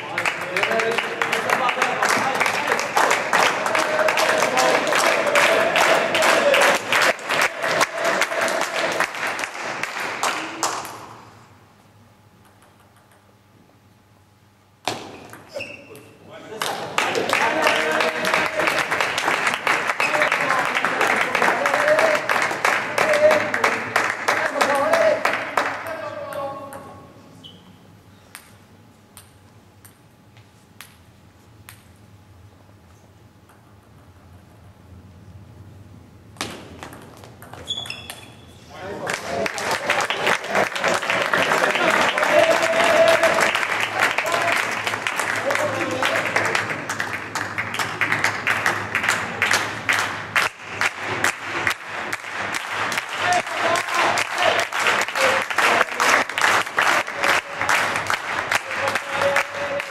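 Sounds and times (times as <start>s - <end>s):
table tennis ball bouncing: 12.4s - 13.3s, 14.8s - 16.1s, 28.3s - 30.0s, 31.6s - 32.0s, 33.4s - 33.8s, 36.4s - 38.4s
table tennis balls clicking: 12.4s - 13.3s, 36.4s - 38.4s
brief high squeak: 15.5s - 16.1s, 37.6s - 38.6s.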